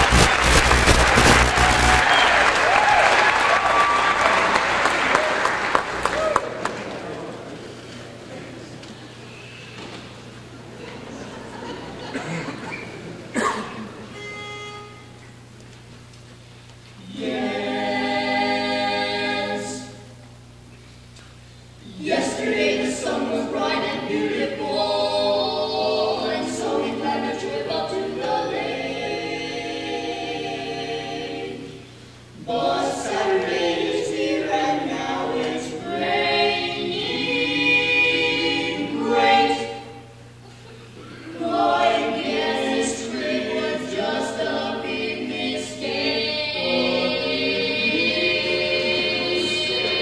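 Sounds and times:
barbershop quartet singing a cappella: 17.0s - 20.1s, 21.8s - 50.0s.

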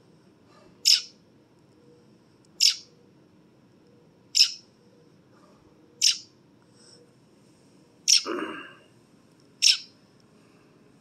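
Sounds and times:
young bird calling: 0.8s - 1.2s, 2.6s - 3.0s, 4.3s - 4.7s, 6.0s - 6.4s, 8.1s - 8.3s, 9.6s - 10.0s.

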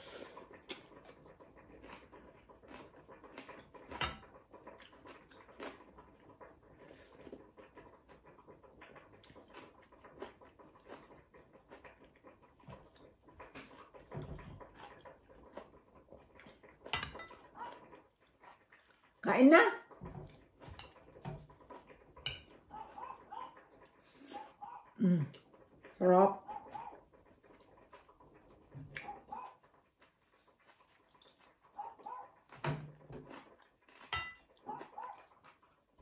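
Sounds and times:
chewing: 0.0s - 19.2s, 19.8s - 36.0s
cutlery clinking on bowls: 3.5s - 5.2s, 16.7s - 17.8s, 20.0s - 23.2s, 32.6s - 35.1s.

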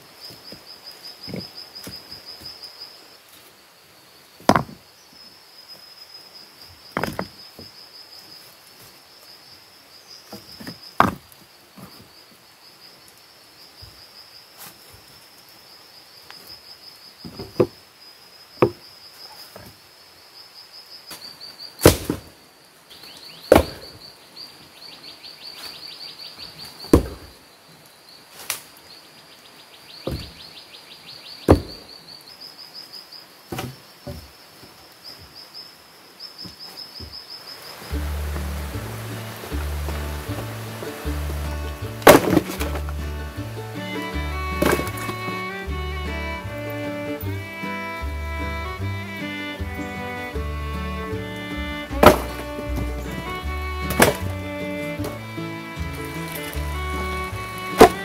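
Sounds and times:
stones and logs knocking: 1.2s - 2.5s, 4.4s - 4.8s, 6.9s - 7.7s, 10.3s - 12.0s, 17.2s - 17.8s, 18.6s - 18.8s, 21.8s - 22.3s, 23.4s - 24.0s, 26.8s - 27.4s, 30.0s - 30.4s, 31.5s - 31.9s, 33.5s - 34.8s, 37.8s - 58.0s.

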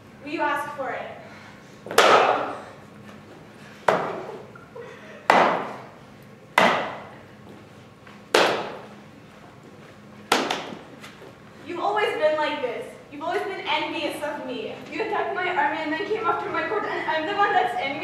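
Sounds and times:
prop swords clacking: 8.3s - 8.8s.

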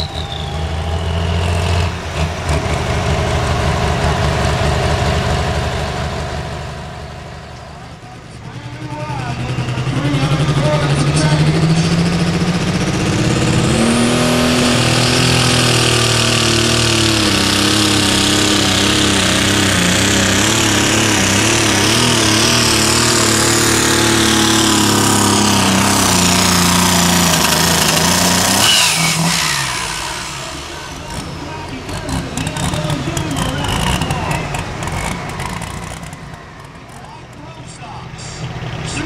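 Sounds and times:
tractor engine at full power: 0.0s - 39.0s.

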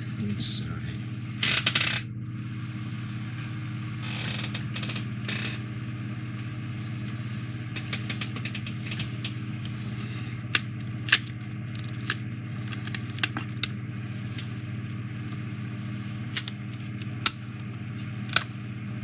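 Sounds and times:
low hum: 0.0s - 19.0s
puzzle parts clicking and snapping: 10.5s - 13.7s, 16.3s - 17.5s, 18.3s - 18.6s.

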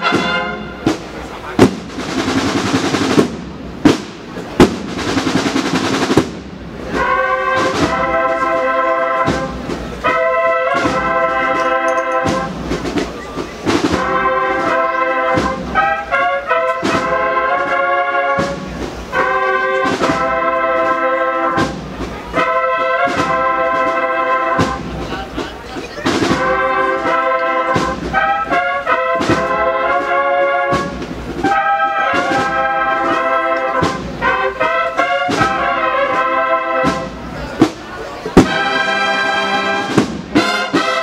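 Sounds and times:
sharp drum strikes: 0.0s - 8.0s, 10.8s - 14.2s, 15.3s - 15.9s, 21.6s - 22.2s, 24.6s - 28.3s, 33.8s - 34.3s, 36.8s - 38.8s, 39.8s - 41.0s
cornets and low brass chords: 0.0s - 13.0s, 13.6s - 25.4s, 26.0s - 37.3s, 38.4s - 41.0s.

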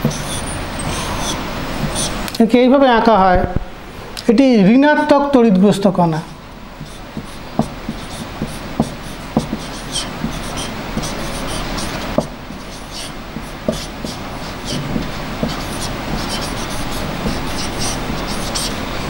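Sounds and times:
marker pen tapping and squeaking: 0.0s - 0.4s, 6.8s - 18.8s
background hiss and hum: 0.0s - 19.0s.

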